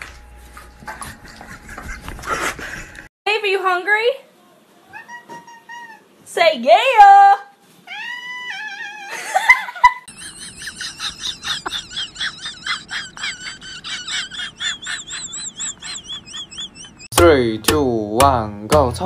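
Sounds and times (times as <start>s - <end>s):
cat meowing: 7.8s - 9.2s
dog whining: 7.9s - 9.3s.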